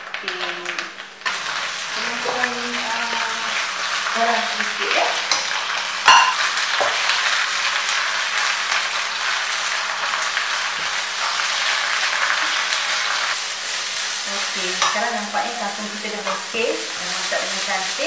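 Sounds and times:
vegetables sizzling in a wok: 0.0 - 18.0
utensil clanking on wok: 5.2 - 7.1, 14.7 - 15.1.

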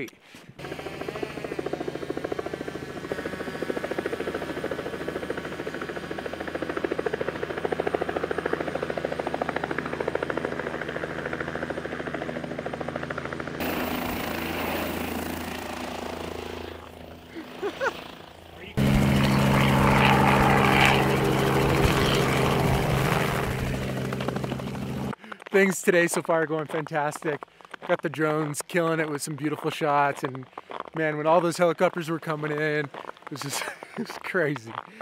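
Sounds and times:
helicopter rotor beating: 0.6 - 27.3.

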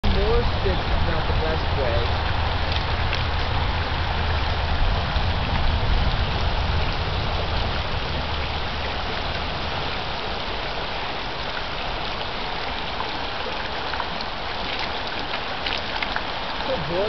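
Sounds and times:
low rumble: 0.0 - 10.6
river rushing over gravel: 0.0 - 17.0.

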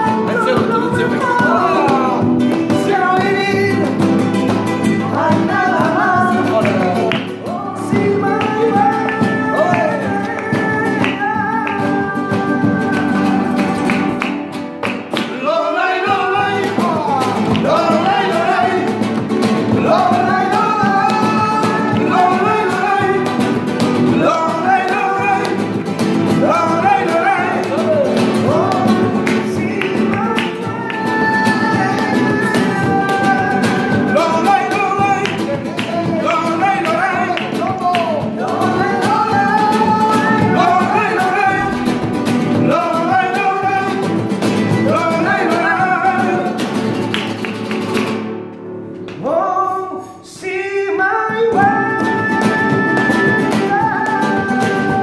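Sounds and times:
man singing flamenco: 0.0 - 48.3, 49.1 - 55.0
rhythmic handclaps: 0.0 - 49.2, 51.3 - 55.0
flamenco guitars: 0.0 - 55.0.

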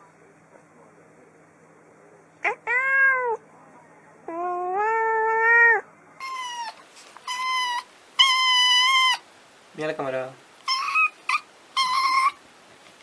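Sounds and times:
cat meowing: 2.4 - 3.4, 4.3 - 9.2.

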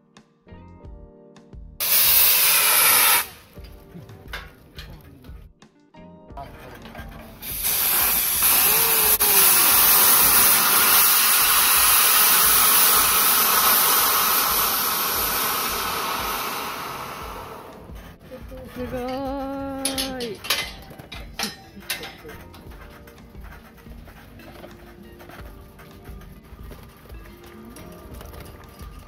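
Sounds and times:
steam venting hiss: 1.8 - 3.6, 7.4 - 18.8.

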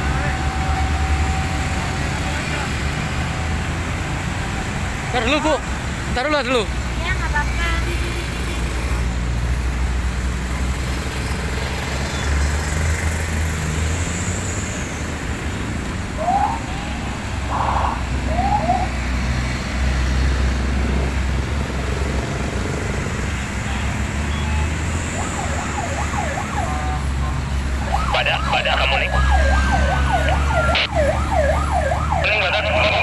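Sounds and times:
armoured vehicles engine rumble: 0.0 - 33.0
rising siren-like whoops: 16.1 - 19.2, 24.5 - 27.2, 27.8 - 33.0.

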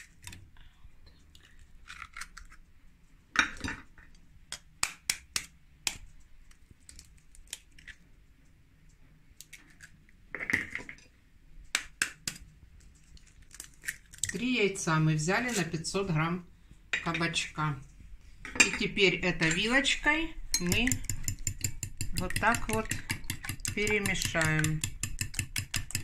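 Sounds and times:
eggs cracking against bowl: 11.7 - 14.4, 20.6 - 26.0.

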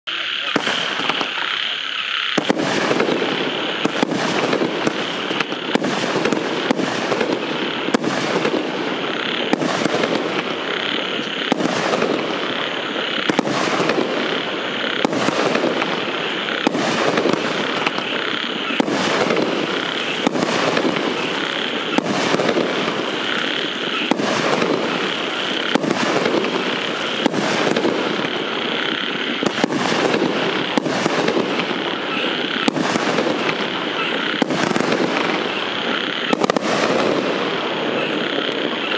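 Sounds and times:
fireworks cake shots: 0.1 - 38.9
steady hiss: 0.1 - 38.9.

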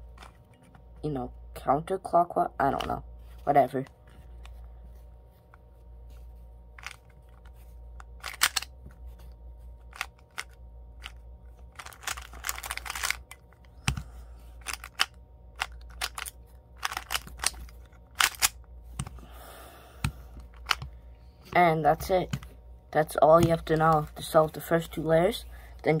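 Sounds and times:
puzzle cube clicking: 8.2 - 8.7, 9.9 - 14.0, 14.6 - 19.1.

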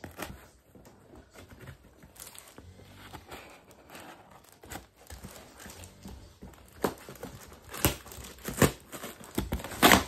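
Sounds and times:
cardboard ripping apart: 1.5 - 10.0
scissors cutting packing tape: 6.7 - 10.0.

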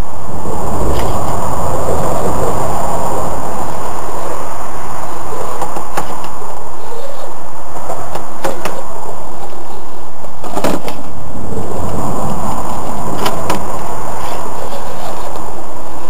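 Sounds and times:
loud rumbling: 0.0 - 16.0
toy car tumbling on rock: 10.4 - 11.0.

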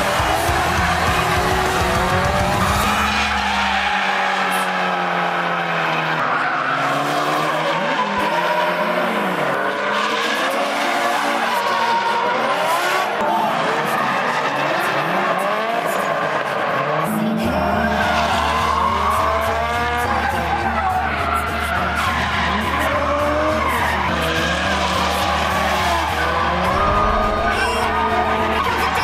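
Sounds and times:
car engines revving: 0.0 - 29.0
tyres squealing: 17.5 - 29.0.

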